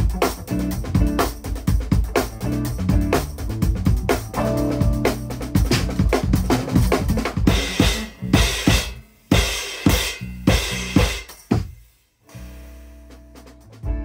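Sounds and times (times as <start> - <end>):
drum kit groove: 0.0 - 14.0
electric bass notes: 0.0 - 14.0.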